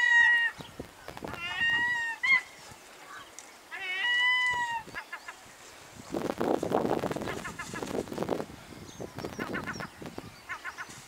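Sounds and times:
gulls calling: 0.0 - 5.8, 7.0 - 8.4, 9.0 - 11.0.

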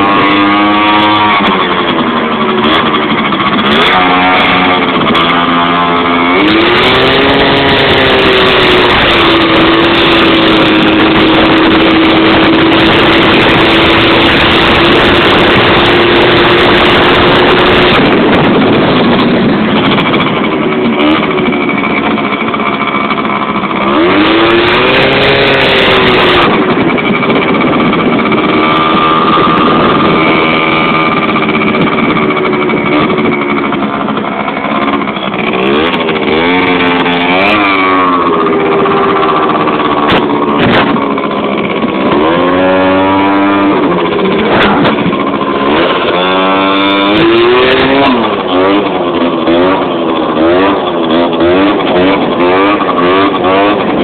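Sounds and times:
skateboard wheels rolling on asphalt: 0.0 - 54.0
motor-like tone rising and falling: 28.2 - 53.8.

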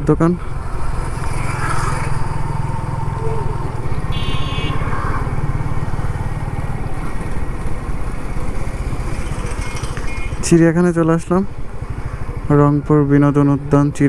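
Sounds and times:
motorcycle engine running: 0.4 - 14.0
high-pitched tone: 3.2 - 4.8.

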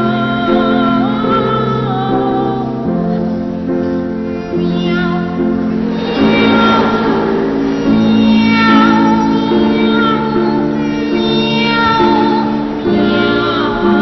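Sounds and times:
piano accompaniment: 0.0 - 14.0
boy singing cat-like meows: 8.0 - 14.0.

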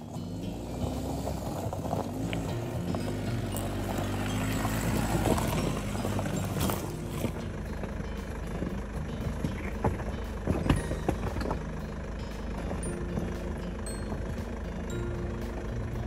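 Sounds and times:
diesel engine running low: 0.0 - 16.0
tyres crunching on gravel: 0.0 - 16.0
stones knocking under truck: 0.5 - 11.8.

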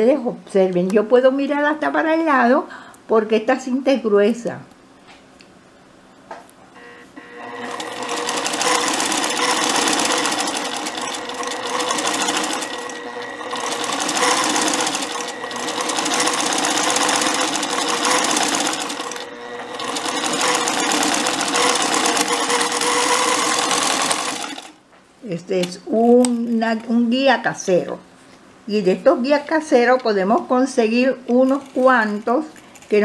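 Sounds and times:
sewing machine stitching: 7.4 - 24.8.

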